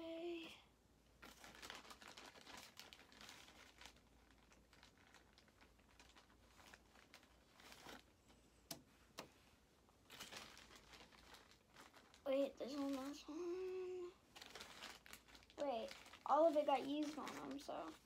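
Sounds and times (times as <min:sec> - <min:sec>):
plastic bag crinkling: 0:01.2 - 0:08.2, 0:10.0 - 0:18.0.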